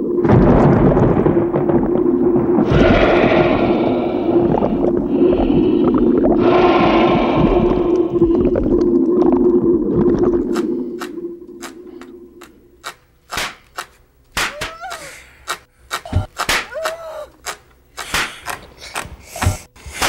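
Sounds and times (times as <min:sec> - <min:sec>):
sharp clicks and knocks: 0:10.5 - 0:19.7.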